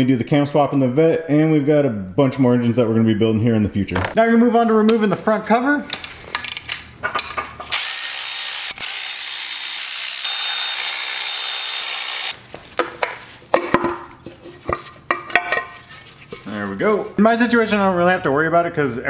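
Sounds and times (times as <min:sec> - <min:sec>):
metal parts clicking and knocking: 0:05.9 - 0:12.4
electric ratchet spinning: 0:07.7 - 0:12.4.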